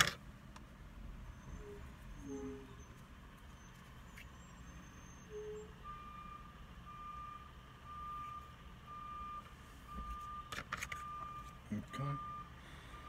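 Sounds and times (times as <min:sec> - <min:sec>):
low steady hum: 0:00.0 - 0:13.0
reversing alarm beeping: 0:01.3 - 0:03.0, 0:04.4 - 0:13.0.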